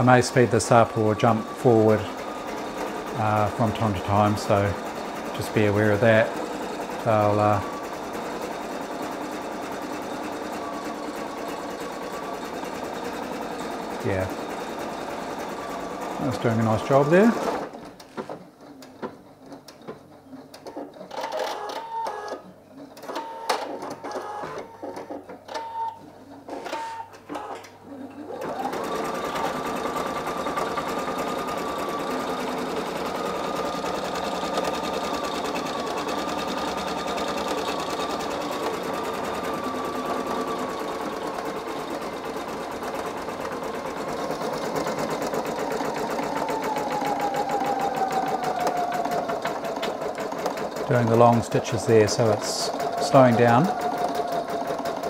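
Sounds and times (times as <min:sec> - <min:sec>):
embroidery machine stitching: 0:00.0 - 0:55.0.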